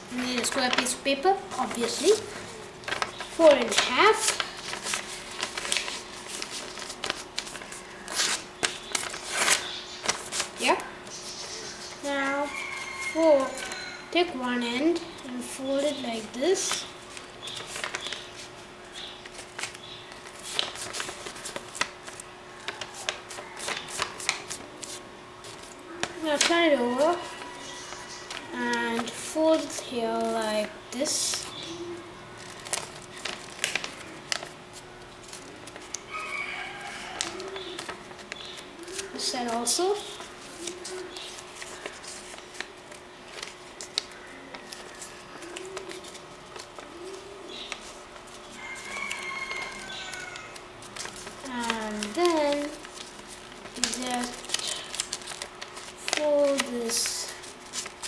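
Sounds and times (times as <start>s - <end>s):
paper rustling and crinkling: 0.0s - 14.4s, 15.0s - 31.8s, 32.4s - 58.0s.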